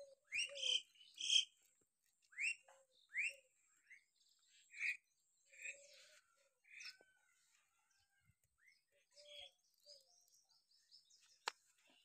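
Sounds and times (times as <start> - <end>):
other bird calls: 0.0 - 1.6
upward-sweeping bird chirps: 0.0 - 1.6.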